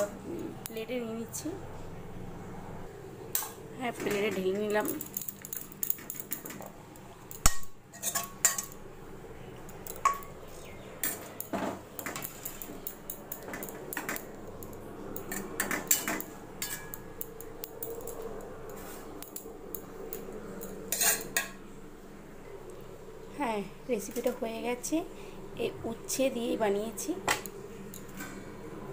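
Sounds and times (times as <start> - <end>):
metal spoon clinking on dishes: 7.3 - 8.8, 15.2 - 18.3, 20.1 - 21.6.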